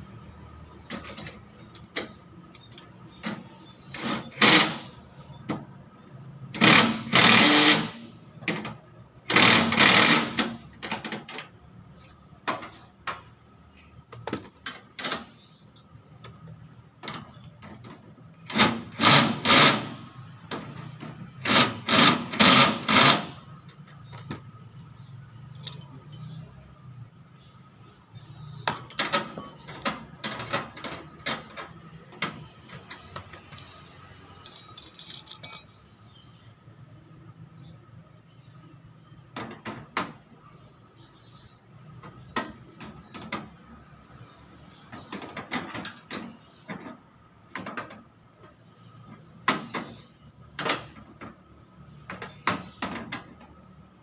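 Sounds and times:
metal clicks and handling: 25.5s - 26.4s, 34.4s - 35.8s.

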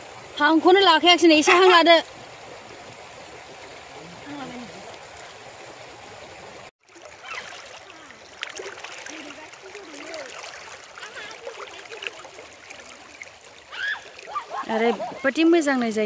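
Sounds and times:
river water rushing: 0.0s - 15.7s
faint voices: 7.7s - 13.3s.

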